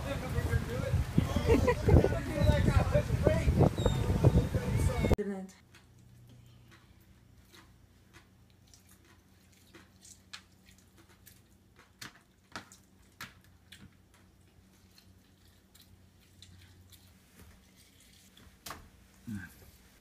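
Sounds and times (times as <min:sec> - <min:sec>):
wet squishes and drips: 0:05.7 - 0:18.9.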